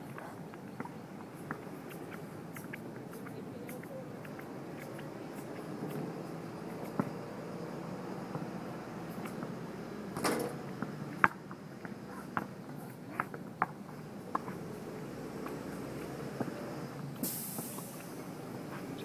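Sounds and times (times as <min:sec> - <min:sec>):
brief hiss: 0:17.2 - 0:18.1.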